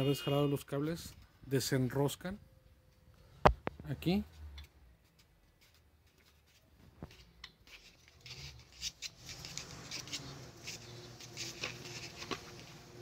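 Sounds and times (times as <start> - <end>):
scratchy rubbing of threads: 5.6 - 12.9.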